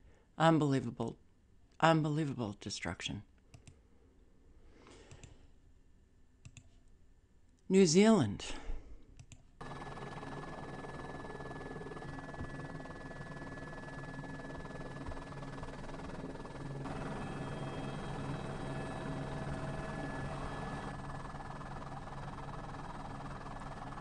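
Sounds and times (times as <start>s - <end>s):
high whine: 9.6s - 21.9s
helicopter rotor and engine drone: 9.6s - 24.0s.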